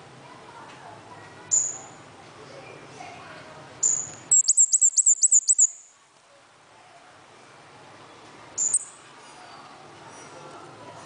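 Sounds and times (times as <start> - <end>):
songbird calling: 1.5 - 2.0, 3.8 - 5.9, 8.6 - 9.0.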